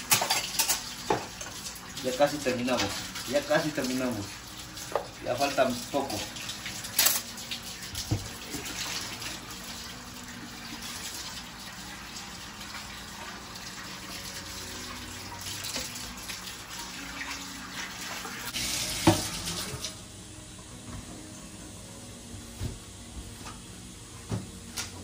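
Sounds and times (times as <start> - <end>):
dishes being rinsed: 0.0 - 20.0
tap running into metal sink: 7.9 - 8.8, 19.0 - 19.9.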